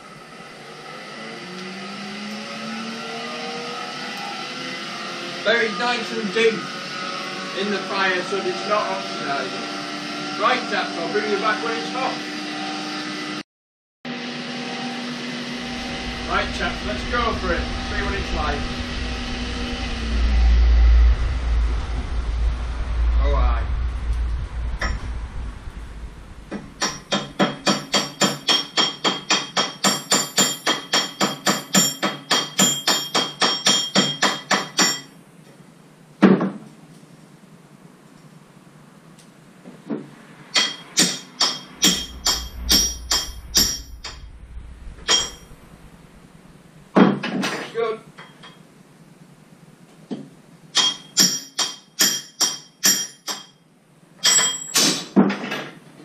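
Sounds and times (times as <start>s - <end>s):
hammer striking metal on anvil: 26.8s - 35.2s, 40.5s - 44.2s, 45.1s - 45.5s, 50.7s - 53.6s, 54.2s - 55.1s.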